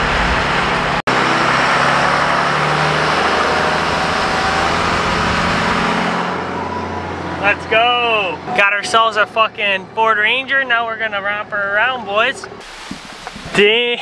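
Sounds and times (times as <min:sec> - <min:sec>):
wind and road rush: 0:00.0 - 0:08.8
truck engine running: 0:00.0 - 0:11.6.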